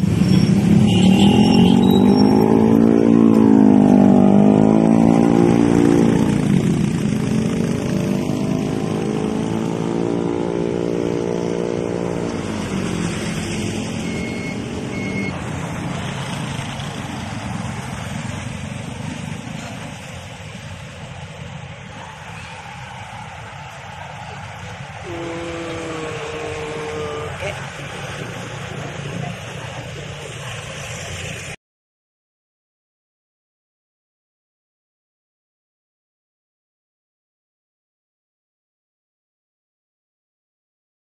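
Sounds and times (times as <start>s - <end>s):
traffic rumble: 0.0s - 31.6s
vehicle engines passing: 0.0s - 31.6s.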